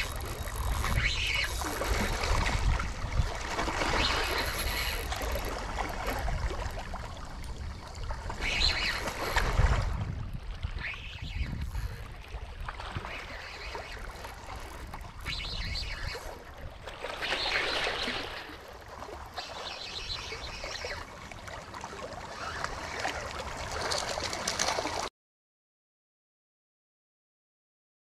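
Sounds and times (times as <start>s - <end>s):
wind rumble on microphone: 0.0s - 13.4s
water splashing and trickling: 0.0s - 25.1s.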